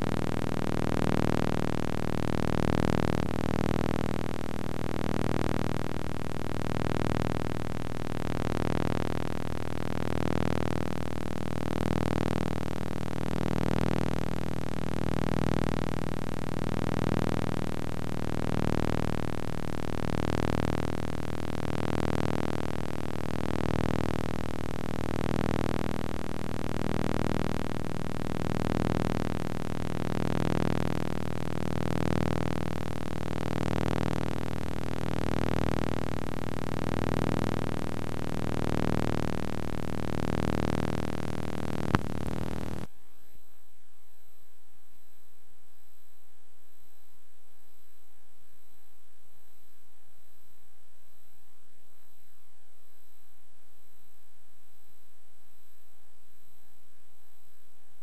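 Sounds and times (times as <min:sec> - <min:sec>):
hiss and hum: 0:00.0 - 0:58.0.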